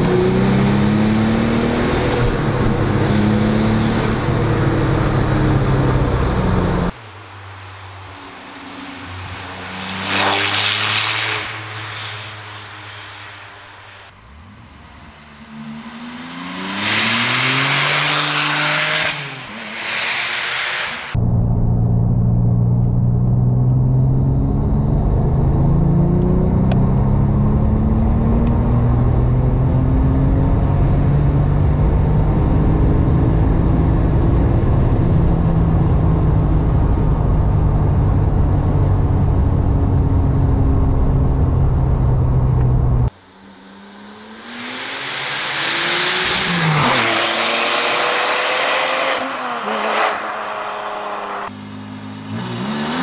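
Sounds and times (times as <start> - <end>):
car engine accelerating hard: 0.0 - 7.0, 14.1 - 53.0
car passing by: 8.5 - 14.1, 15.5 - 21.2.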